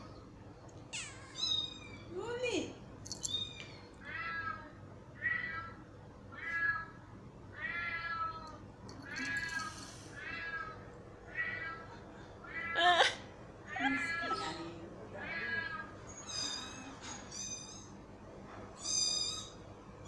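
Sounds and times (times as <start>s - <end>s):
cat meowing: 13.8s - 17.9s.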